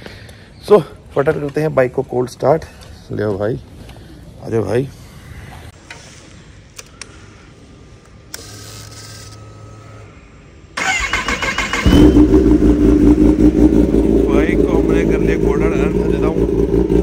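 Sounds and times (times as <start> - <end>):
motorcycle starter cranking: 10.8 - 13.0
motorcycle engine running loudly: 11.9 - 17.0.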